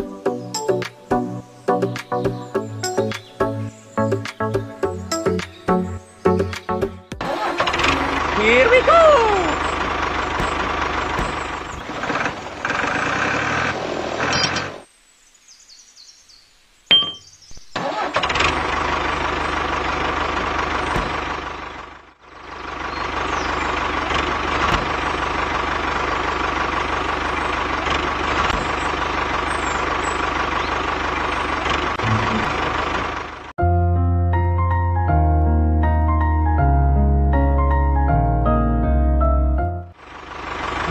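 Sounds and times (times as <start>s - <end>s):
tractor engine running: 1.9s - 14.8s, 16.9s - 33.6s, 39.9s - 40.9s
soft piano music: 33.6s - 40.0s.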